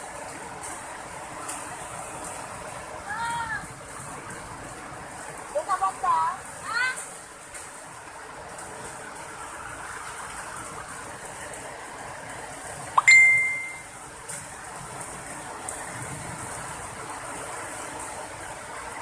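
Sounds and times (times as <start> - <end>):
rain and hail on concrete: 0.0 - 13.0, 13.6 - 19.0.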